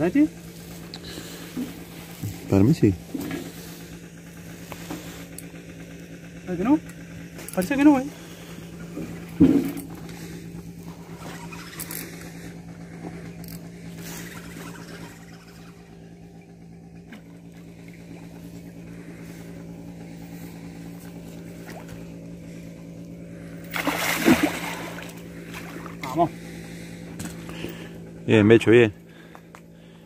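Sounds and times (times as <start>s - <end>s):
engine humming: 0.0s - 30.0s.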